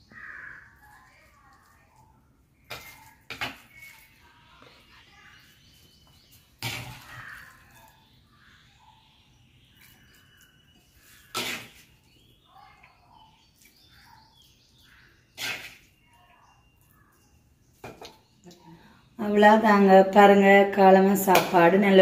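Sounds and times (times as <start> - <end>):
birds chirping faintly: 0.0 - 22.0
wooden spoon scraping clay pot: 9.8 - 12.2, 15.2 - 16.1.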